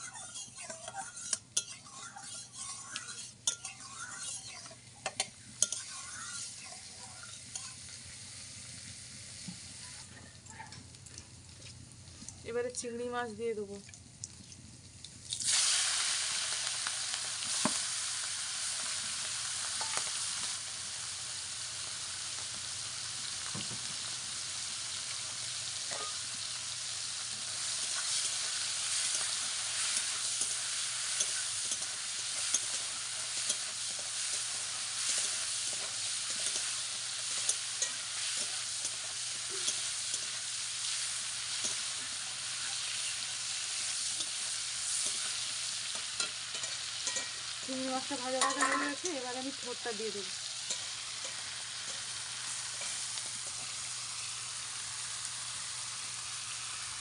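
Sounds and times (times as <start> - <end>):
spatula scraping a metal pan: 0.0 - 4.8, 27.6 - 42.0
prawns sizzling in hot oil: 0.0 - 57.0.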